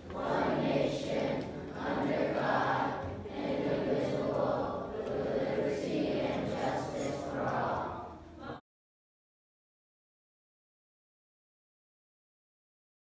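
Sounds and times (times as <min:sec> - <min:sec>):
group of voices singing: 0:00.0 - 0:08.6.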